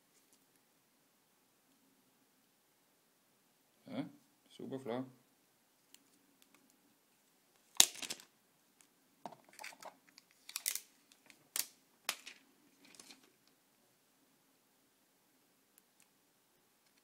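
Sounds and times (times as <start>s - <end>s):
plastic packaging crinkling: 9.5s - 13.3s.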